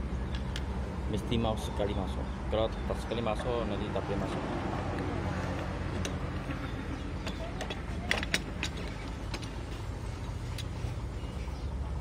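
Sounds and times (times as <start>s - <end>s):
metallic clicks and clanks: 7.2s - 10.8s.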